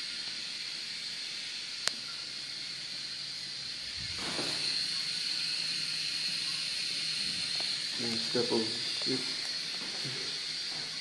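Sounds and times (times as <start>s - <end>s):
water running through urinal: 0.0s - 11.0s.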